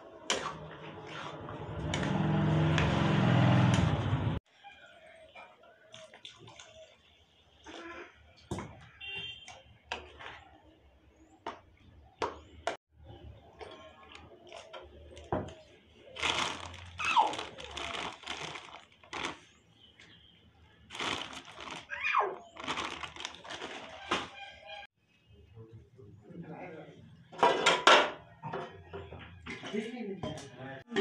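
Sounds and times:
spice packet crinkling: 16.2 - 19.4, 20.9 - 24.3.

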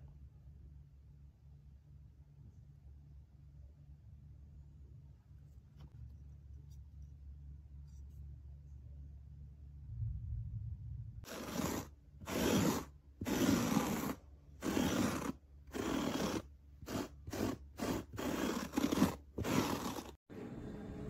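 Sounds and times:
metal rake scraping carpet: 11.2 - 20.2.

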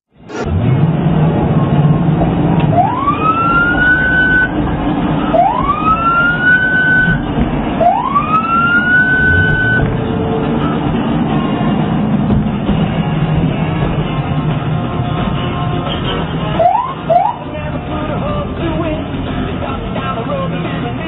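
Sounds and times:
police siren wailing: 2.7 - 10.8, 16.6 - 17.4.

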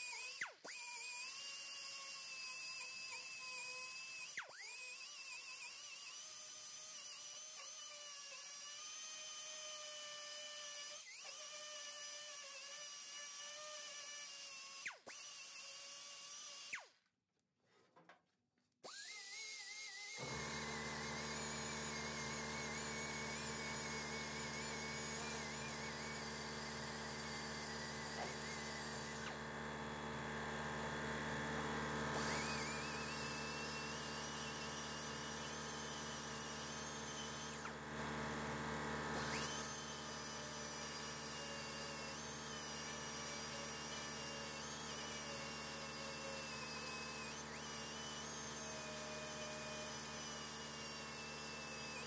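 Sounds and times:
power grinder grinding metal: 20.2 - 29.4, 38.6 - 52.0.

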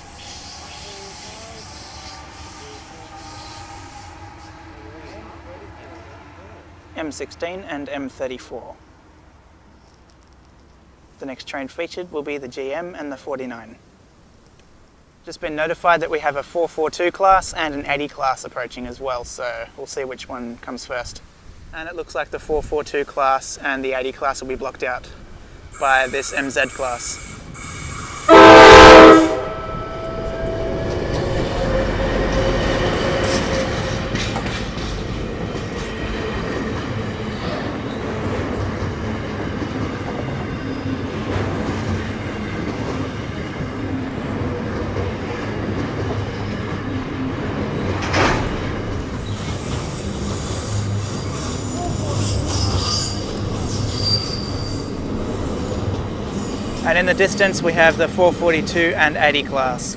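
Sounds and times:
high wheel squeal: 0.0 - 5.3, 25.7 - 35.6, 48.7 - 57.2
freight train rumbling past: 0.0 - 9.6, 23.9 - 59.9
train horn blast: 28.2 - 34.4.

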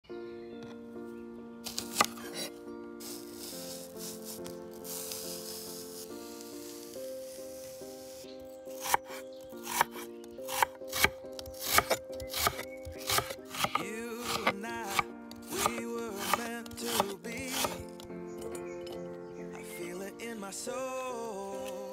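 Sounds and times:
soft background music: 0.0 - 21.9
knife chopping on wooden board: 1.7 - 2.5, 8.8 - 17.8
peeler scraping rhubarb: 1.7 - 18.0.

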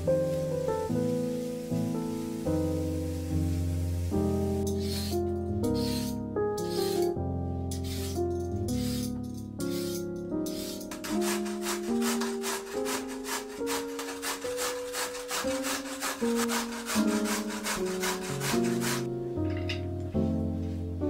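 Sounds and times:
background piano music: 0.0 - 21.0
carrot grated on metal grater: 9.7 - 19.1.

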